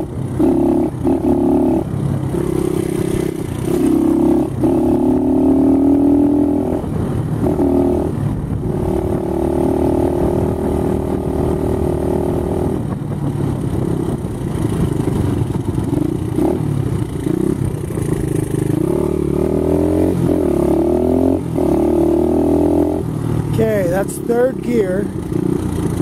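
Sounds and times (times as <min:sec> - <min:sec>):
dirt bike engine revving: 0:00.0 - 0:08.1, 0:15.8 - 0:26.0.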